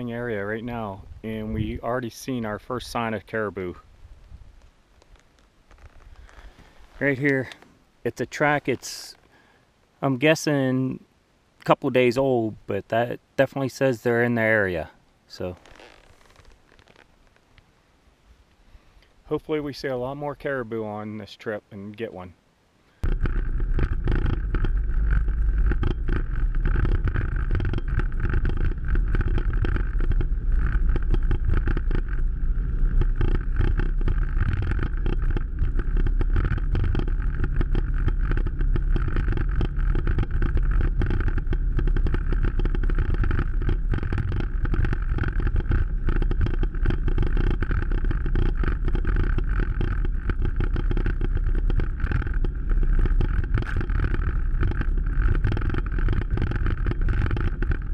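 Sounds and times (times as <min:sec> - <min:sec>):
atv engine running: 0:23.0 - 0:57.9.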